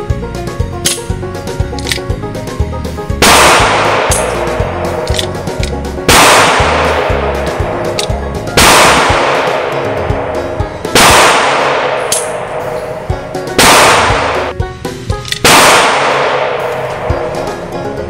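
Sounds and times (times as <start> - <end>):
revolver shots echoing: 3.2 - 14.5.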